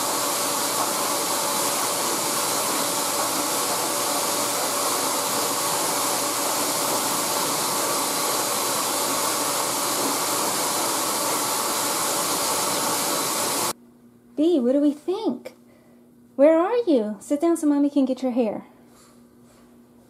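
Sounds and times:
blow dryer running: 0.0 - 13.8.

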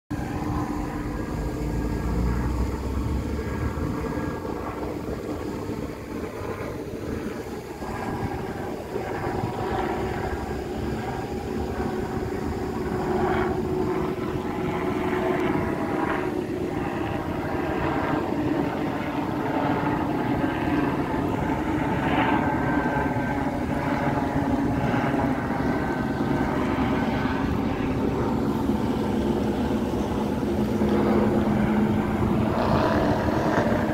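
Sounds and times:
helicopter engine and rotor drone: 0.1 - 33.9.

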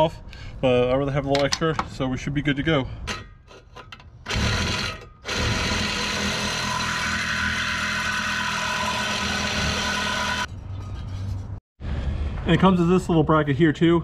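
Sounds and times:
reciprocating saw cutting metal pipe: 3.1 - 10.5.

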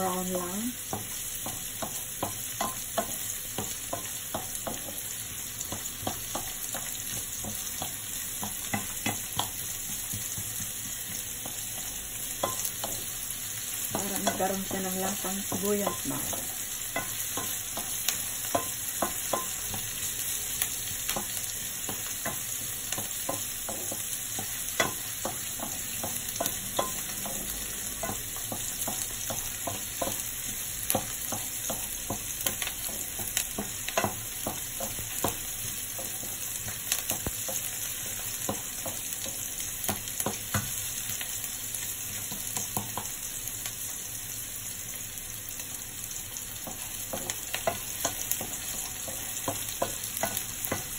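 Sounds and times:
onion sizzling in hot oil: 0.0 - 50.9
wooden spatula scraping and tapping pan: 0.8 - 13.1, 13.8 - 40.8, 42.1 - 43.2, 46.6 - 50.9.

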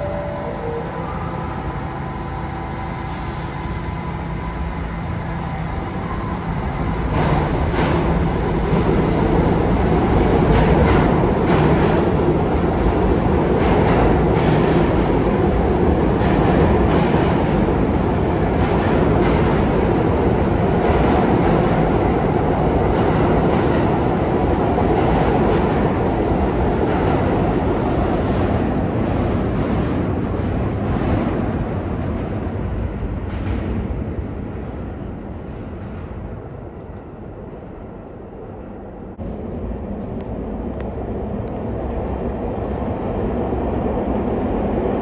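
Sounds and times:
subway train rumble: 0.0 - 45.0.

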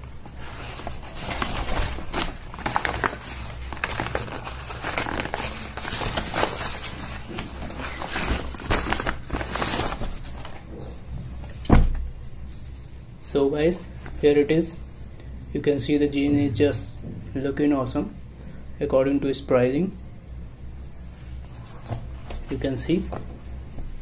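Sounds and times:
paper bag crinkling: 0.2 - 10.9.

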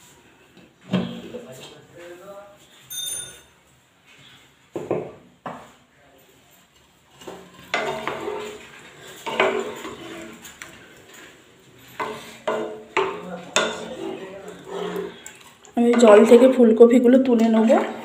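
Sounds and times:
wooden spatula scraping pan: 7.1 - 16.9, 17.5 - 18.0.

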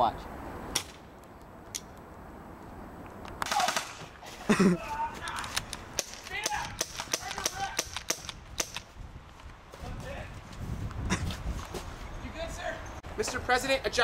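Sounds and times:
gunshots: 3.4 - 4.1
person yelling: 4.7 - 5.5, 6.3 - 7.9.

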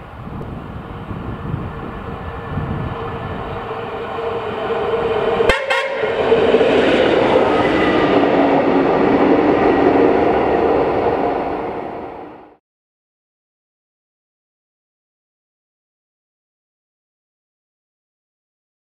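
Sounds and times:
diesel railcar engine passing: 0.0 - 12.6.

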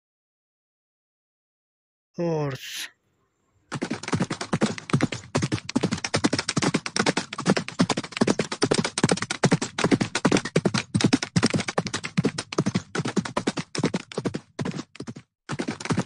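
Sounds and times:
horse hooves tapping and crunching: 3.7 - 16.0.

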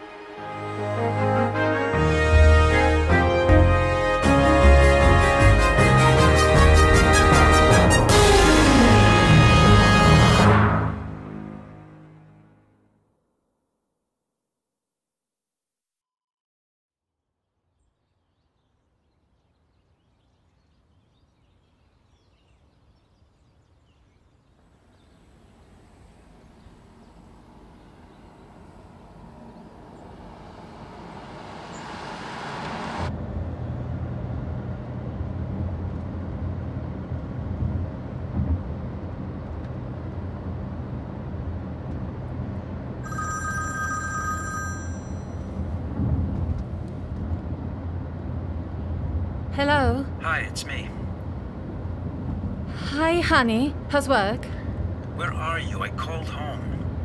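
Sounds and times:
car cabin low drone: 24.6 - 43.1, 44.6 - 57.0
mobile phone ringing: 43.0 - 45.6.

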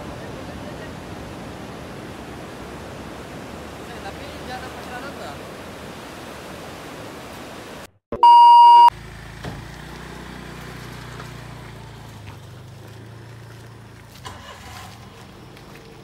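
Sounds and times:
loud electronic beep: 8.2 - 8.9.

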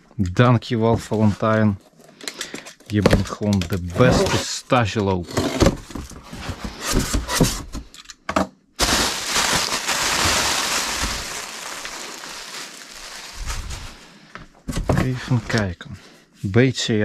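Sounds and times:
packaging crackling: 8.8 - 14.1
packaging knocks and rustles: 8.8 - 15.7.

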